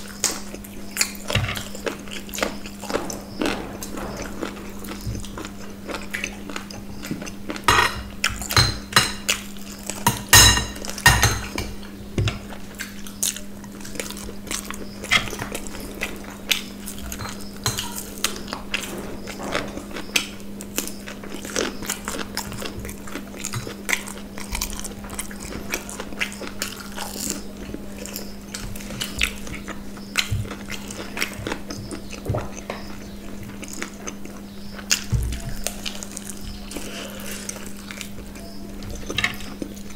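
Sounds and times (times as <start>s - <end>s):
chewing food: 0.0s - 39.9s
steady low hum: 0.0s - 39.9s
forks clinking on plates: 7.7s - 11.8s, 17.1s - 18.1s.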